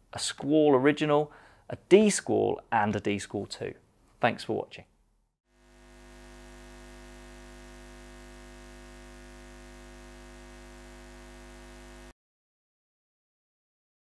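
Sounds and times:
faint electrical hum: 0:05.6 - 0:12.1.

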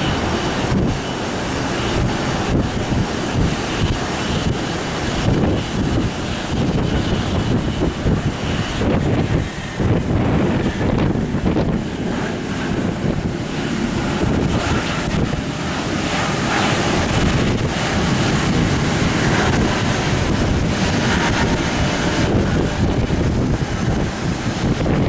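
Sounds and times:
jet engines roaring: 0:00.0 - 0:25.0
wind buffeting microphone: 0:00.0 - 0:25.0.

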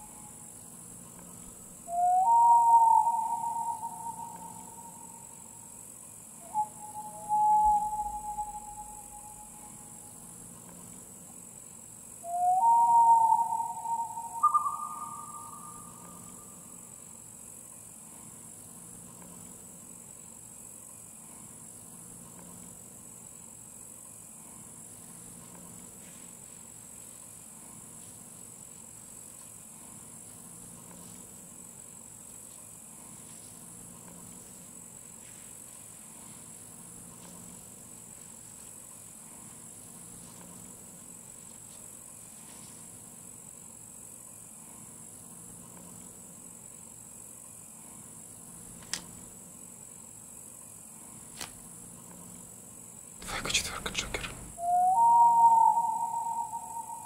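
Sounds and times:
insects chirring: 0:00.0 - 0:57.0
faint low pulsing tone: 0:06.7 - 0:11.0.

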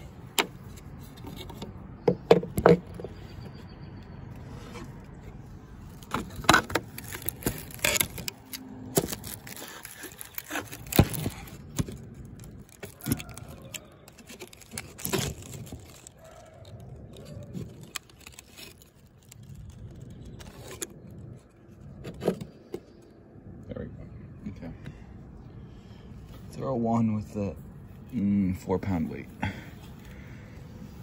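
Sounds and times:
handling clicks and knocks: 0:00.2 - 0:03.6
rustling: 0:04.3 - 0:23.0.

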